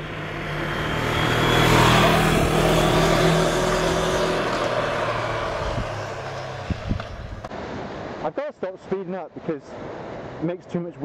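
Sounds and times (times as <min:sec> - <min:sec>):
motorcycle engine accelerating: 0:00.0 - 0:07.5
wind rush on microphone: 0:05.4 - 0:07.5.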